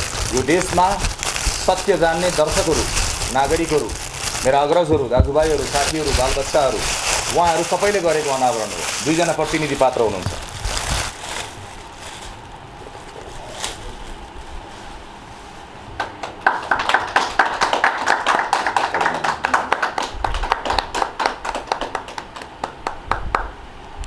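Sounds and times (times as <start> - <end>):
people clapping: 16.0 - 23.6.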